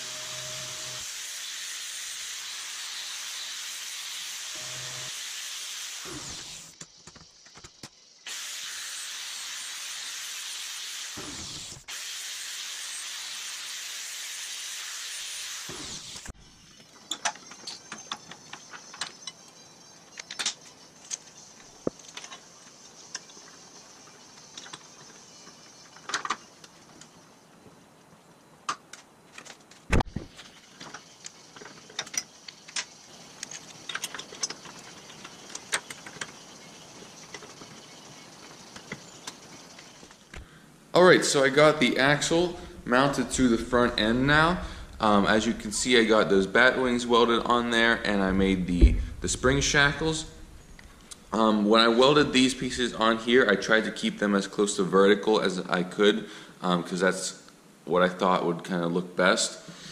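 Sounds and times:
angle grinder grinding steel: 0:00.0 - 0:06.8, 0:41.8 - 0:48.6
small metal parts clinking: 0:30.8 - 0:36.4.

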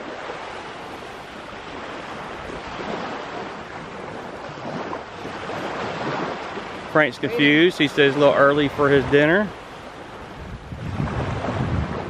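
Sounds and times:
small waves washing onto beach: 0:00.0 - 0:12.0.

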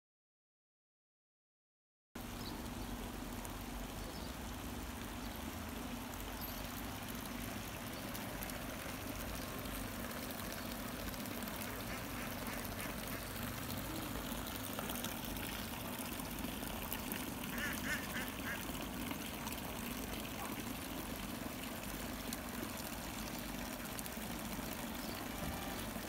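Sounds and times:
ducks quacking: 0:11.6 - 0:13.4, 0:17.5 - 0:18.6.

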